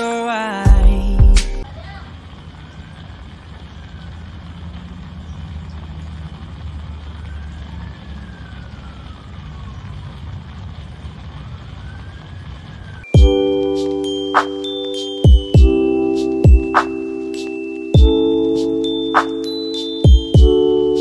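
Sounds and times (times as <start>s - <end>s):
low traffic rumble: 0.7s - 21.0s
faint siren wailing: 1.6s - 21.0s.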